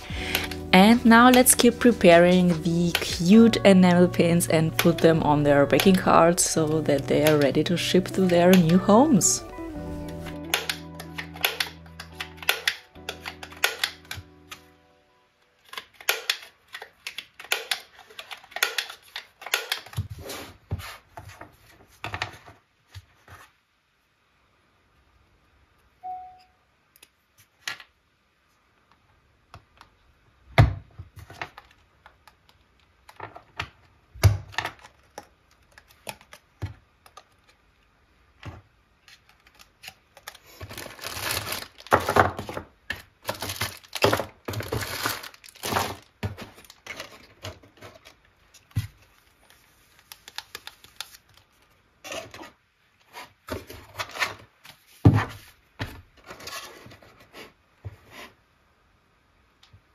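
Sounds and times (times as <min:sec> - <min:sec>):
plastic bags crinkling: 0:39.3 - 0:42.5, 0:43.2 - 0:48.3.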